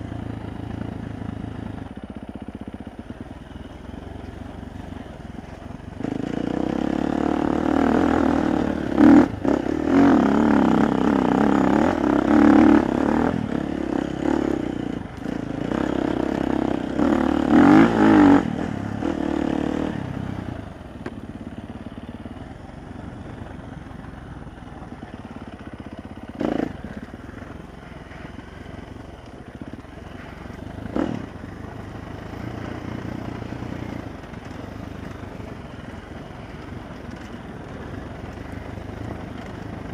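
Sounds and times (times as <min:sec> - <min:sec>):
dirt bike engine revving: 0:06.0 - 0:20.6, 0:26.3 - 0:28.5, 0:30.0 - 0:39.9.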